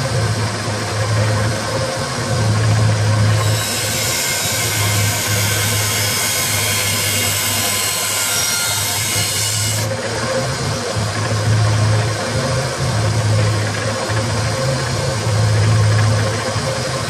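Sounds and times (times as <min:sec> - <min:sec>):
belt sander motor hum: 0:02.2 - 0:17.0
blade grinding on sander belt: 0:03.2 - 0:09.9.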